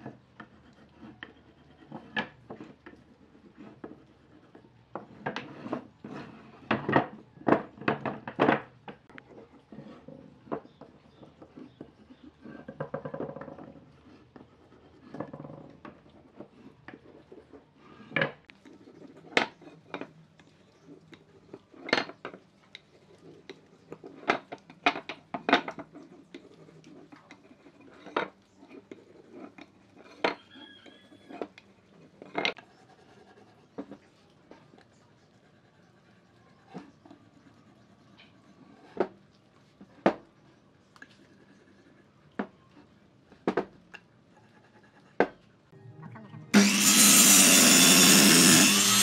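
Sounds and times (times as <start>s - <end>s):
scraping on wood: 0.0s - 20.1s.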